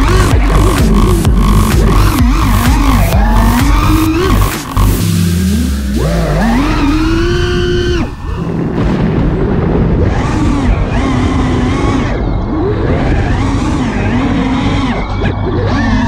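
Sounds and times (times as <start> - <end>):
drone motors whining: 0.0 - 16.0
rushing air from propellers: 1.1 - 13.9.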